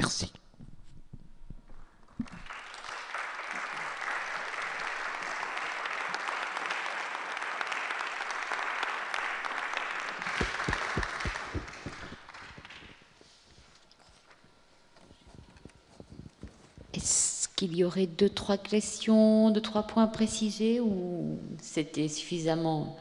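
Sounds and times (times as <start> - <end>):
audience applauding: 2.2 - 13.2.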